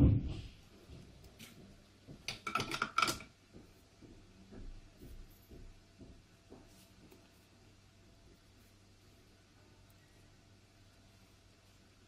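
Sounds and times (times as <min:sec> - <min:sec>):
soft taps and rustling: 0:00.0 - 0:09.2.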